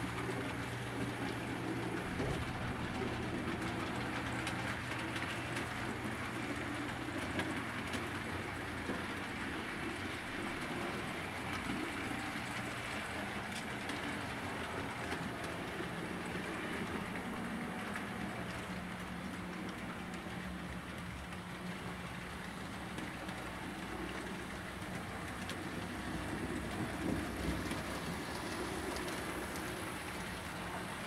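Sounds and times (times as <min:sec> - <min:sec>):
clicks at rail joints: 0:00.0 - 0:31.0
model train wheels rolling on rail: 0:00.0 - 0:31.0.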